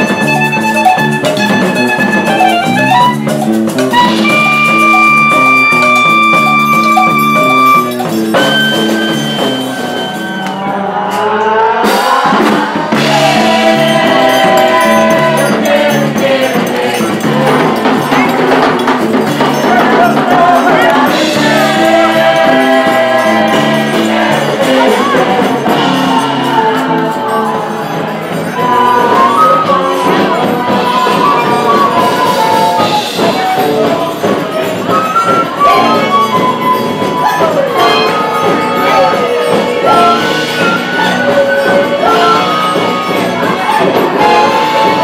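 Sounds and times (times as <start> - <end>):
clarinet notes: 0.0 - 10.8, 28.6 - 45.0
live band playing: 0.0 - 45.0
people singing together: 3.8 - 45.0.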